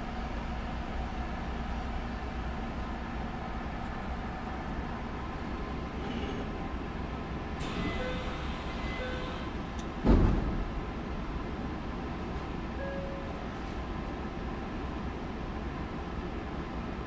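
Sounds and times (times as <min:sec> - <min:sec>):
train doors shutting thump: 0:07.6 - 0:10.9
short beeps: 0:07.8 - 0:09.4, 0:12.8 - 0:13.4.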